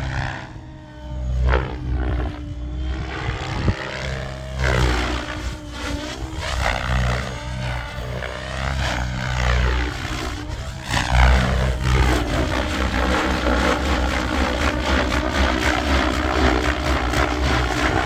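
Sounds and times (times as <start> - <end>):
rc helicopter rotor and motor: 0.0 - 18.0.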